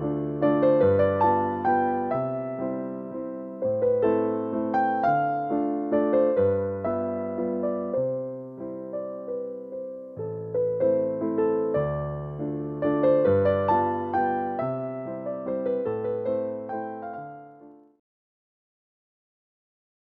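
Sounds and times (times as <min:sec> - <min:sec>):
slow solo piano music: 0:00.0 - 0:18.0.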